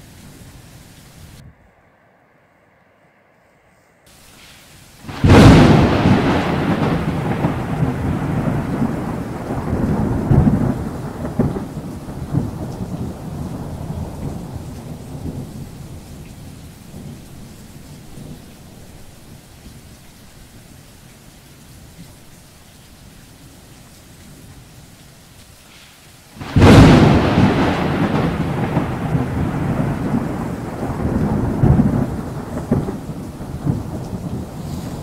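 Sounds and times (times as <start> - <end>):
steady rain hissing: 0.0 - 35.0
thunderclap: 4.4 - 17.4, 26.4 - 35.0
thunder rolling: 5.0 - 17.5, 26.4 - 35.0.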